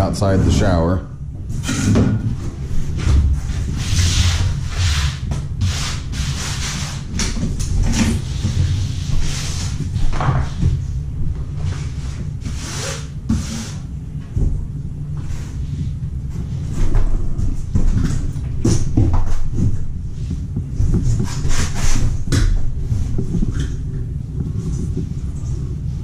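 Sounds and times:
steady low rumble: 0.0s - 26.0s.

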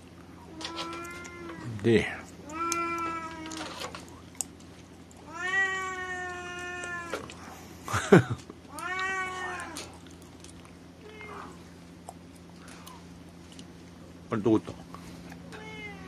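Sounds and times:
cat meowing: 0.5s - 1.6s, 2.4s - 3.8s, 5.2s - 7.3s, 8.7s - 9.9s, 11.0s - 11.6s, 15.5s - 16.0s.

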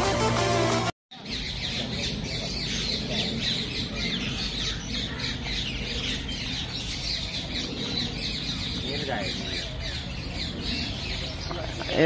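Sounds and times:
flock of birds chirping: 1.1s - 12.0s.

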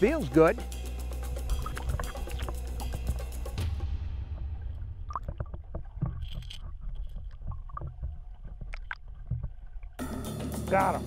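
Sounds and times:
underwater rumble: 1.2s - 10.0s
underwater clicks and blips: 1.3s - 3.7s, 4.3s - 10.0s.

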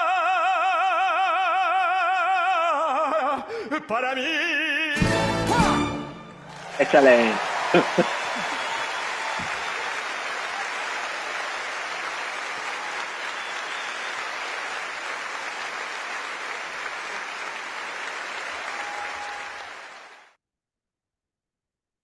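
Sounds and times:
audience applauding: 6.5s - 20.4s.

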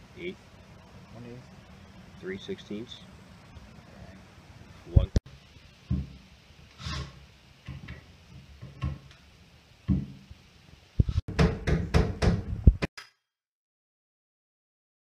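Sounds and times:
knocks on wooden workbench: 9.9s - 10.2s, 11.3s - 12.8s.

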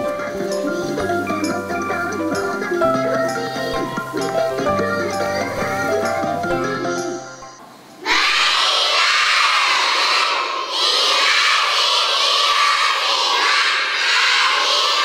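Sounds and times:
children shouting in unison: 8.0s - 15.0s.

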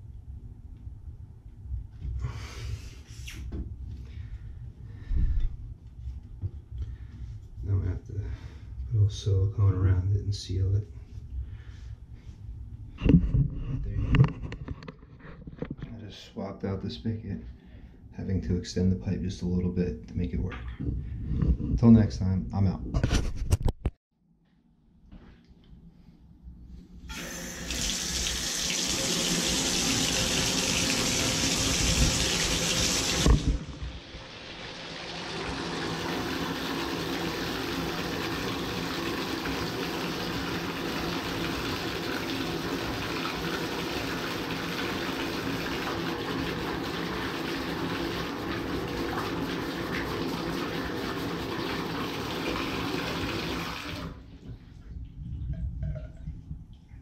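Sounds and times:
water running from faucet: 27.1s - 54.2s.

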